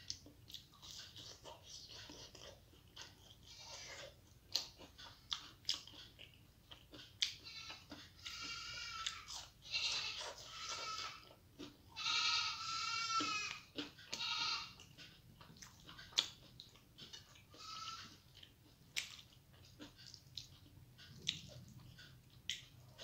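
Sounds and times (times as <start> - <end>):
eating clicks and mouth sounds: 0.0 - 12.1, 12.8 - 23.0
goat bleating: 7.4 - 14.8, 17.5 - 18.2.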